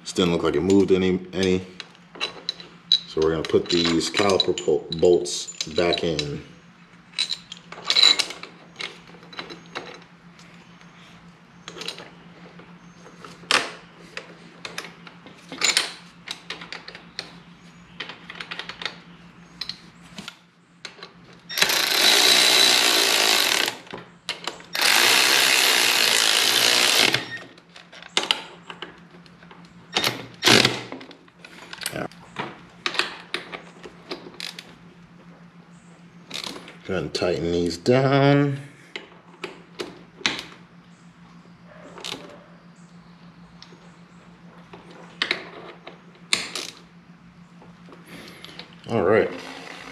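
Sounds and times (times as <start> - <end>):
metal tools clinking: 2.2 - 6.4, 7.1 - 10.1
cordless power tool running: 21.5 - 23.9, 24.7 - 27.4.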